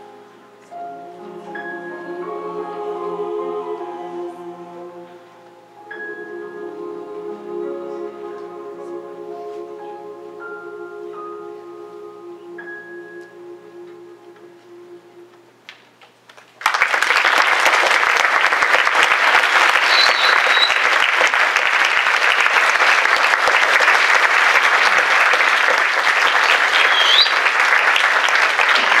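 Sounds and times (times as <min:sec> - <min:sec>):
choir singing sustained chord: 0:00.0 - 0:15.6
audience applause: 0:16.3 - 0:29.0
short whistles: 0:19.8 - 0:20.8, 0:26.7 - 0:27.4.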